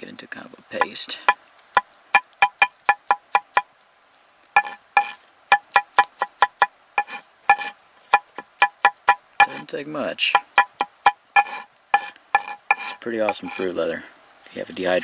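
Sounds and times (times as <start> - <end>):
knife chopping on stone: 0.8 - 3.7, 4.6 - 9.7, 10.3 - 13.6.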